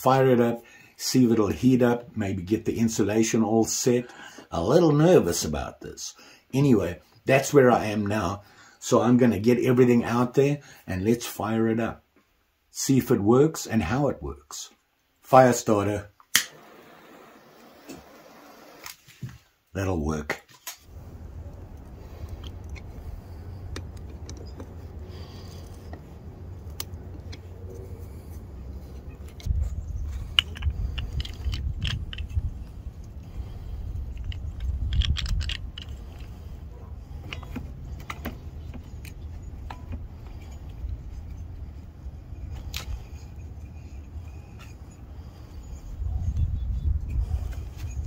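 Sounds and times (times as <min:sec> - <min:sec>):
wind buffeting microphone: 0:20.9 - 0:43.4, 0:45.2 - 0:48.0
metallic clicks of fittings: 0:21.7 - 0:27.5, 0:29.1 - 0:41.4.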